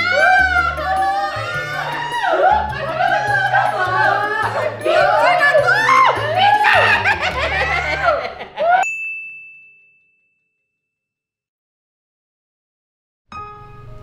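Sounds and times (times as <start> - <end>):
background music: 0.0 - 8.8, 13.3 - 14.0
exaggerated wailing voices: 0.0 - 8.8
high ding sound effect: 8.8 - 10.7.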